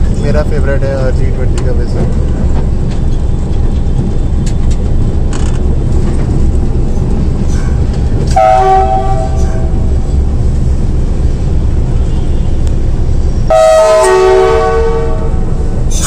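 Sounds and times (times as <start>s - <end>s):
locomotive low rumble: 0.0s - 16.0s
multi-tone locomotive horn: 8.3s - 9.9s, 11.9s - 12.8s, 13.5s - 15.8s.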